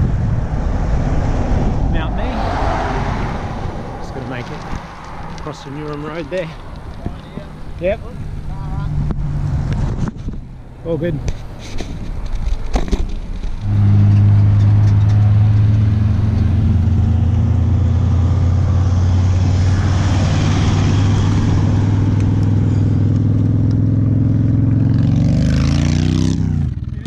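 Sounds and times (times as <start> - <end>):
motorcycle revving away: 13.6 - 26.9.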